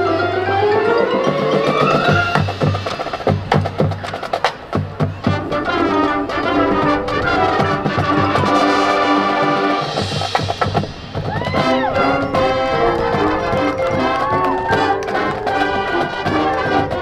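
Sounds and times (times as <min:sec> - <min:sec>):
marching band playing: 0:00.0 - 0:17.0
drum and percussion strikes: 0:01.0 - 0:17.0
brass sustained chords: 0:05.2 - 0:10.1, 0:11.6 - 0:17.0.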